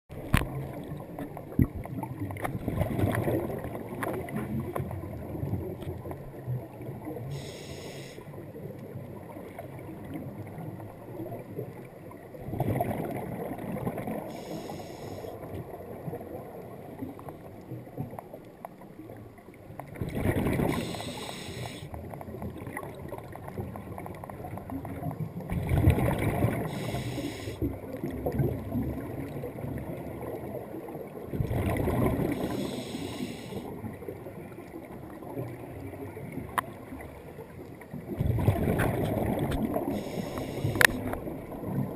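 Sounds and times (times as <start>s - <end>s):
regulator bubbling and gurgling: 0.1s - 18.3s, 19.8s - 41.9s
low water rumble: 0.1s - 41.9s
regulator hiss: 7.4s - 8.2s, 14.3s - 15.3s, 20.7s - 21.9s, 26.7s - 27.6s, 32.3s - 33.6s, 39.9s - 40.9s.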